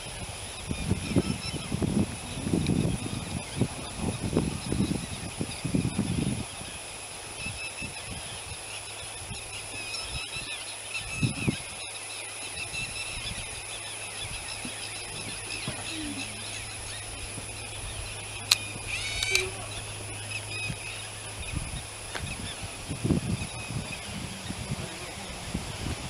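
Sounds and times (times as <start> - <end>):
faint bird chirps: 7.4 - 24.8
low hum: 11.4 - 26.0
high-pitched drone: 12.5 - 25.5.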